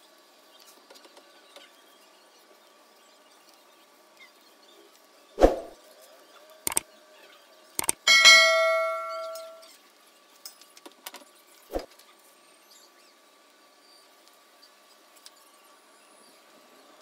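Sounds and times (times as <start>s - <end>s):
double mouse click: 7.8s - 8.0s
bright bell ding: 8.1s - 9.6s.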